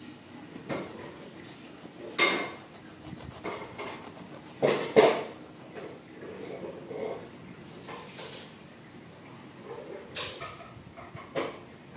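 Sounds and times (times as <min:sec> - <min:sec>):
knife sawing through bread crust: 0:00.6 - 0:06.0.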